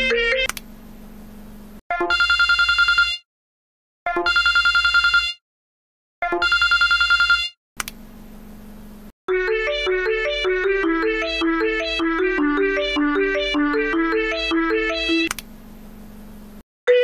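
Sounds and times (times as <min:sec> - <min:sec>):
phone ringtone trilling: 0:00.0 - 0:00.5, 0:01.9 - 0:03.2, 0:04.1 - 0:05.4, 0:06.3 - 0:07.5, 0:09.3 - 0:15.3.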